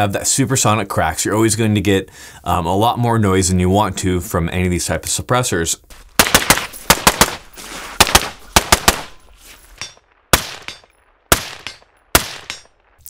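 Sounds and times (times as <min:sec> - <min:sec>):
suppressed rifle shots: 0:06.2 - 0:09.2, 0:10.1 - 0:13.0.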